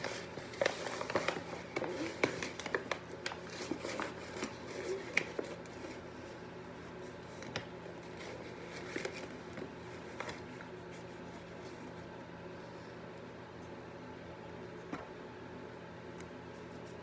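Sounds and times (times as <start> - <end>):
paper bag rustling: 0.0 - 6.0
steady low hum: 0.0 - 17.0.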